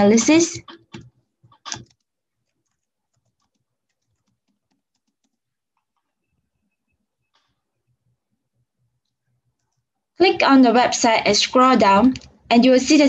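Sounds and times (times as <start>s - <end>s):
typing on computer keyboard: 0.7s - 5.5s.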